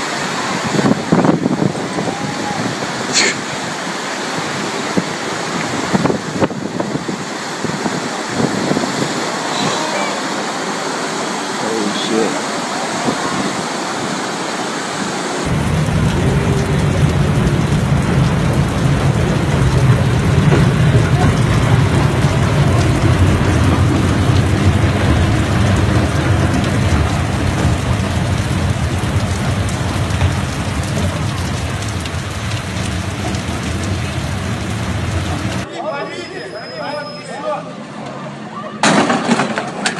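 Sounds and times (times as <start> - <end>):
heavy rain: 0.0 - 39.9
rushing floodwater: 0.0 - 39.9
low rumble: 15.4 - 35.6.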